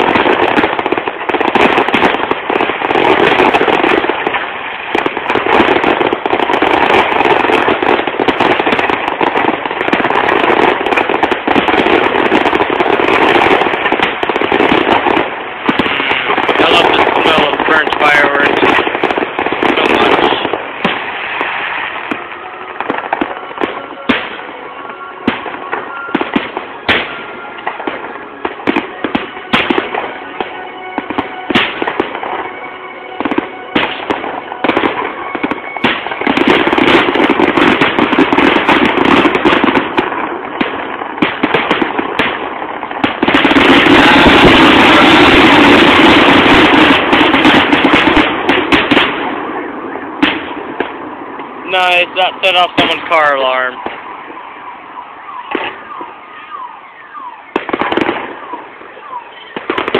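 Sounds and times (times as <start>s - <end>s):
fireworks booming and crackling: 0.0s - 59.9s.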